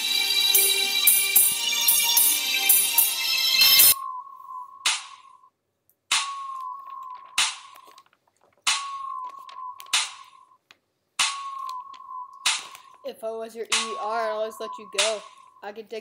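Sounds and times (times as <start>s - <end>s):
sharp snap-like beat hits: 4.9s - 5.3s, 6.1s - 6.6s, 11.2s - 11.7s, 12.4s - 12.9s.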